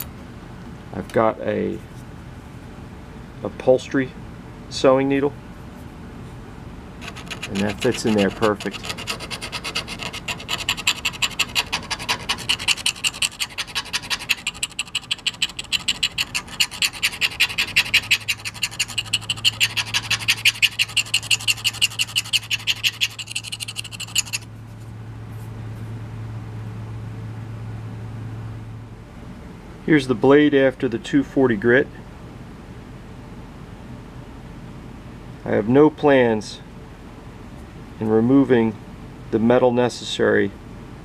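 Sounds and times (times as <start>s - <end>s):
low steady hum: 0.0s - 41.0s
needle scraping knife blade: 7.0s - 24.5s.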